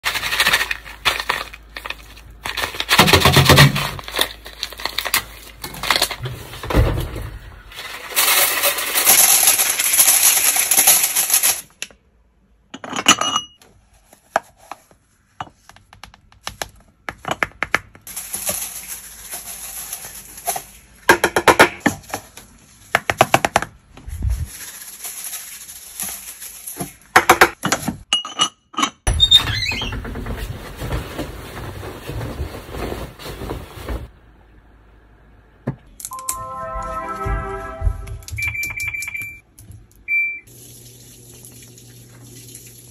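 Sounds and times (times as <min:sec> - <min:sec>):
plastic packet handled: 0:00.0 - 0:06.2, 0:18.1 - 0:20.9
grains rattling onto metal: 0:07.8 - 0:11.7.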